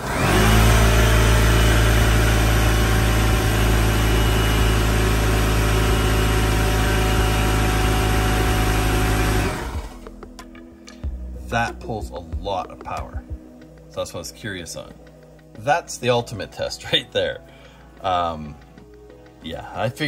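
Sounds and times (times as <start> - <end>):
air compressor motor hum: 0.0 - 10.1.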